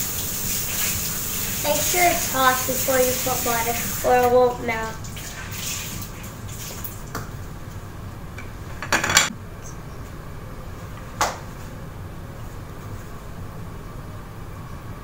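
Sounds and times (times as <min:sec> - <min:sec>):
spatulas clattering on a plate: 0:08.8 - 0:09.3.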